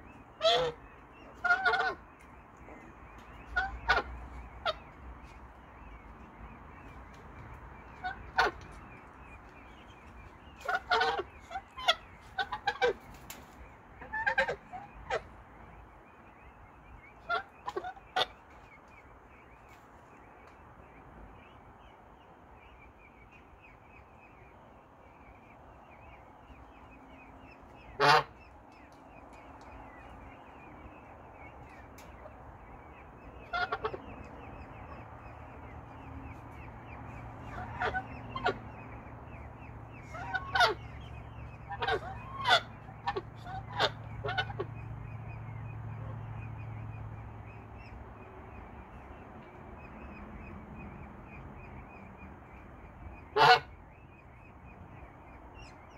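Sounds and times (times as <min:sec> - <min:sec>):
domestic fowl calling: 0:00.0 - 0:02.3, 0:03.1 - 0:05.9, 0:07.8 - 0:09.2, 0:09.9 - 0:15.4, 0:17.1 - 0:18.5, 0:27.4 - 0:28.4, 0:33.1 - 0:35.0, 0:37.3 - 0:44.8, 0:53.2 - 0:53.8.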